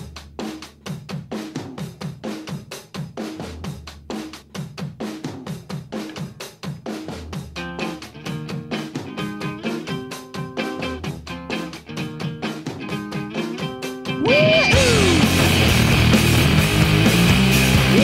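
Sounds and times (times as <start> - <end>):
fast drum kit beat: 0.0 - 18.0
pitched instrument: 13.3 - 18.0.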